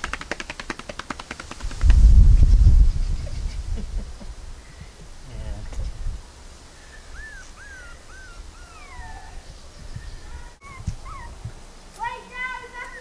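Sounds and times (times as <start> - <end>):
puppies whimpering: 6.8 - 11.5.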